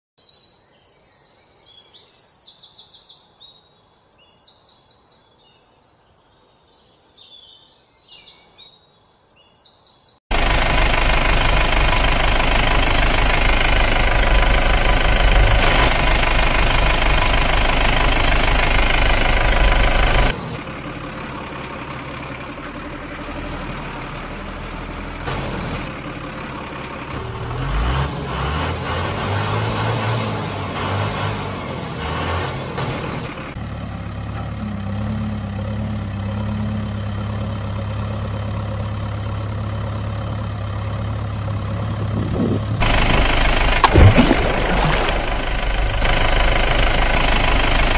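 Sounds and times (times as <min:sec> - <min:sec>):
small birds chirping: 0:00.2 - 0:10.2
engine running with heavy bass: 0:10.3 - 0:47.9.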